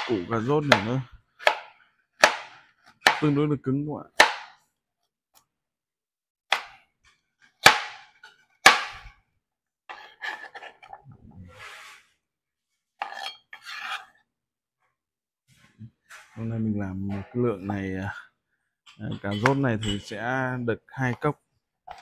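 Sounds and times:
knife chopping on cutting board: 0:00.0 - 0:03.4, 0:04.1 - 0:04.6, 0:06.5 - 0:06.8, 0:07.6 - 0:09.2
scraping on cutting board: 0:09.9 - 0:12.2, 0:13.0 - 0:14.3.

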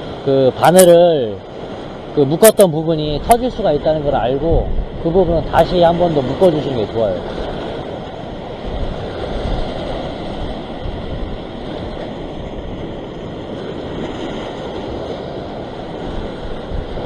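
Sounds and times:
surf washing over rocks: 0:00.0 - 0:17.0
wind rumbling on microphone: 0:01.4 - 0:17.0.

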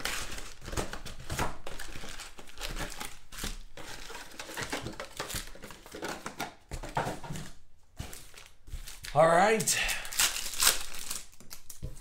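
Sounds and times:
wrappers crinkling and tearing: 0:00.0 - 0:06.4, 0:08.1 - 0:12.0.

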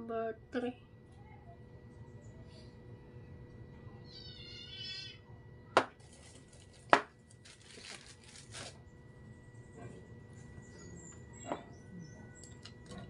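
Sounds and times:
high wavering cry: 0:04.1 - 0:05.2.

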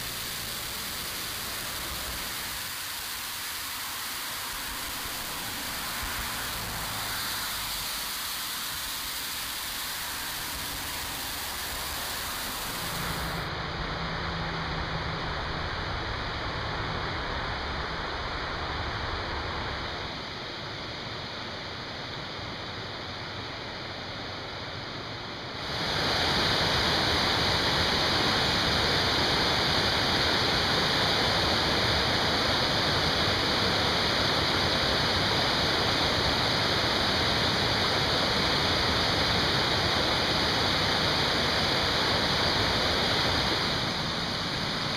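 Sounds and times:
waterfall pouring down: 0:00.0 - 0:13.5, 0:25.6 - 0:44.9
river flowing over rapids: 0:00.0 - 0:44.9.

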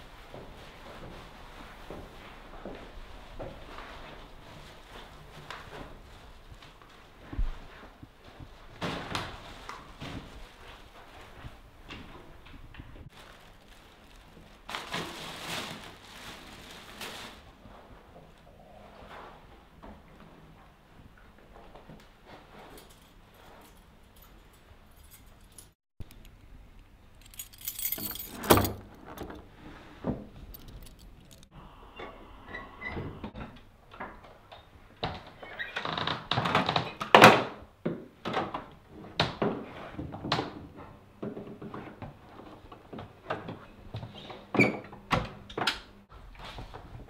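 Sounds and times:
keys jangling: 0:22.8 - 0:25.8, 0:27.2 - 0:29.0, 0:30.5 - 0:31.5.

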